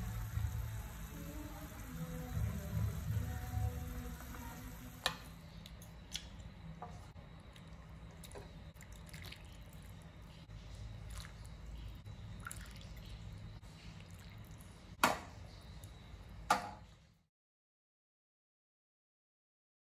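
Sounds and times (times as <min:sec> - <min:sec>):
low hum: 0:00.0 - 0:08.8
broth pouring and dripping: 0:07.6 - 0:14.8.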